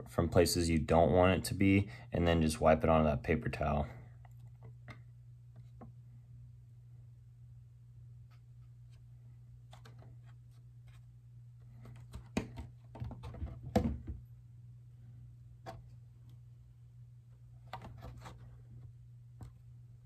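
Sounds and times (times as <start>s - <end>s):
plastic body clicking and crinkling: 11.7s - 14.2s.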